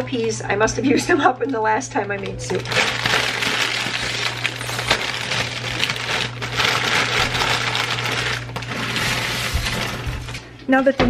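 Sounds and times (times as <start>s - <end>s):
plastic bag crinkling: 2.2s - 10.5s
dry noodles rattling: 2.4s - 10.2s.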